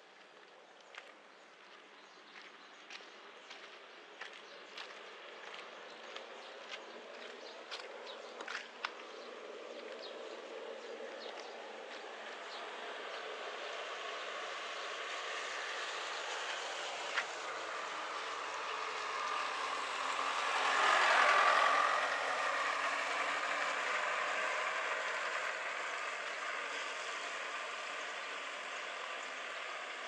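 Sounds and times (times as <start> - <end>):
vehicle passing on wet road: 3.5 - 30.0
steady rain hiss: 12.2 - 30.0.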